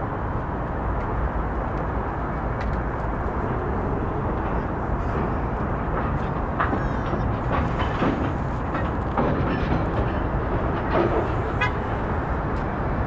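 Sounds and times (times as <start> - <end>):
freight train wheels rumbling: 0.0 - 13.0
train clicks: 0.9 - 13.0.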